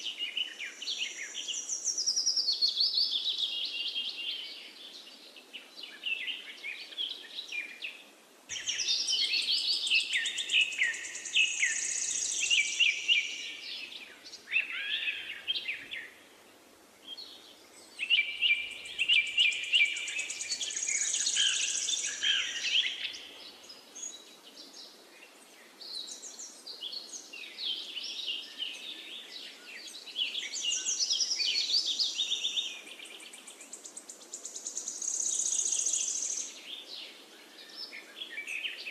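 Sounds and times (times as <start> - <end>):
faint steady hiss: 0.0 - 38.9
birds chirping and singing: 8.5 - 16.1, 17.9 - 23.2.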